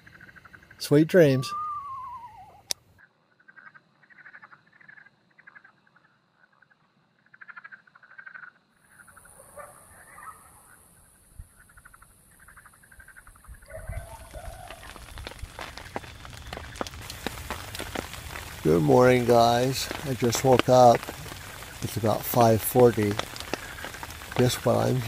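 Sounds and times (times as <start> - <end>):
frogs trilling: 3.3 - 25.0
steady high hiss: 15.9 - 25.0.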